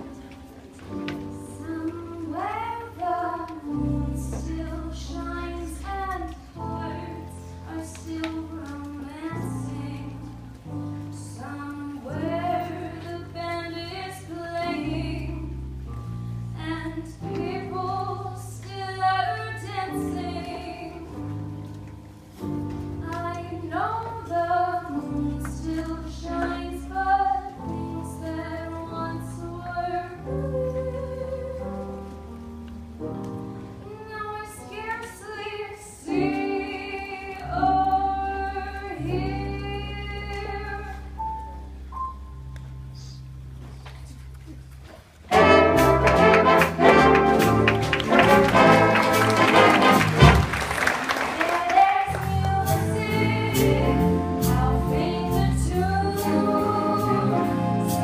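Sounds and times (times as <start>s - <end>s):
woman singing into microphone: 1.3s - 10.4s, 11.1s - 15.6s, 16.6s - 21.2s, 23.0s - 31.9s, 33.9s - 41.2s, 51.4s - 57.8s
band playing held low notes: 45.3s - 50.7s.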